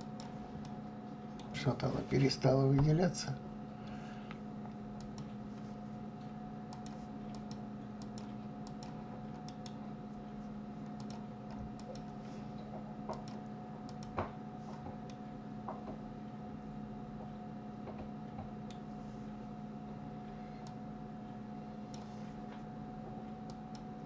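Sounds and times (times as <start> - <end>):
faint electrical hum: 0.0 - 24.0
computer mouse clicks: 5.0 - 5.4, 6.7 - 9.8, 10.8 - 12.2, 13.1 - 14.2.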